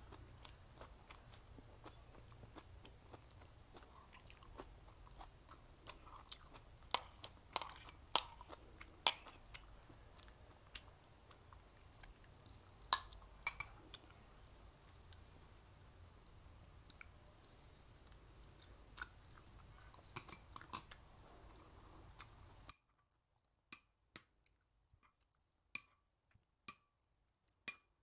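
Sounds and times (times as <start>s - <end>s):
mouth chewing sounds: 0.0s - 22.5s
chopsticks clinking on porcelain bowls: 6.9s - 9.5s, 12.9s - 13.8s, 20.1s - 20.9s.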